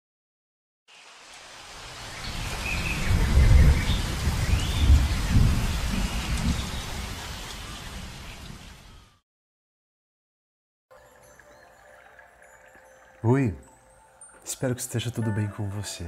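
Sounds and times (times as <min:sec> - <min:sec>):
steady rain hiss: 0:00.9 - 0:09.2, 0:11.0 - 0:15.2
thunder rolling: 0:02.4 - 0:07.0.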